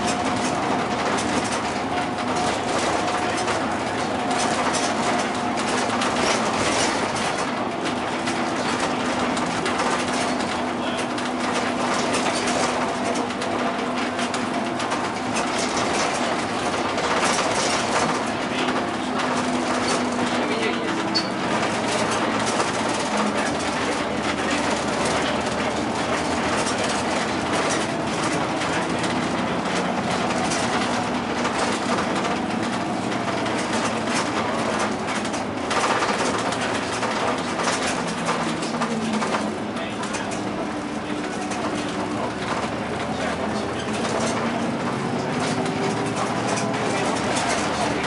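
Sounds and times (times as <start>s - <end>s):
bus engine droning: 0.0s - 48.0s
cabin rattling: 0.0s - 48.0s
road and tyre noise: 0.0s - 48.0s.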